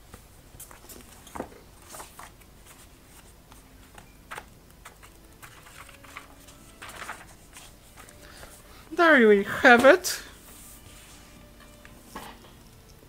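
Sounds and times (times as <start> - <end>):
paper rustling and crinkling: 0.5 - 8.7.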